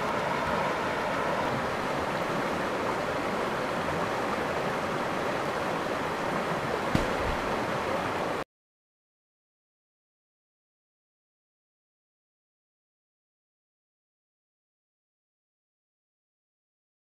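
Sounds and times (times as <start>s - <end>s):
creek water rushing over rocks: 0.0s - 8.4s.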